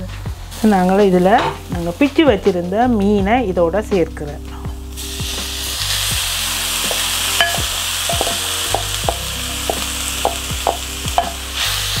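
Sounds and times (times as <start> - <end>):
background music: 0.0 - 12.0
food sizzling in a pan: 0.4 - 2.4, 4.7 - 12.0.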